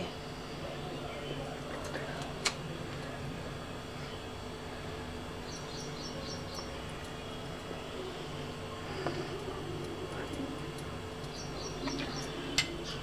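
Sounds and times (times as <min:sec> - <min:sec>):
low room hum: 0:00.0 - 0:13.0
small bird chirping: 0:05.4 - 0:07.4, 0:11.2 - 0:13.0.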